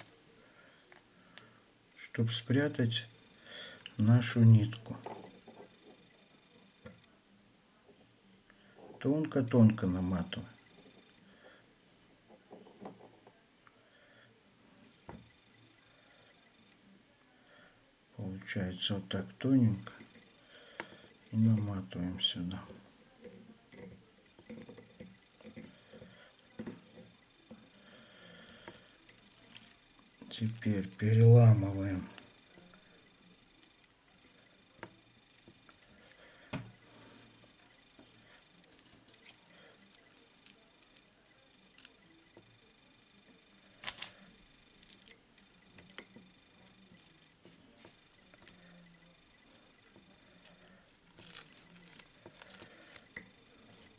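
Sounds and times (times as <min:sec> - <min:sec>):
fingers rustling thread: 0:19.4 - 0:53.9
plastic strip crinkling: 0:28.4 - 0:34.0, 0:37.6 - 0:42.1, 0:43.8 - 0:44.2, 0:44.8 - 0:48.8, 0:50.3 - 0:53.9.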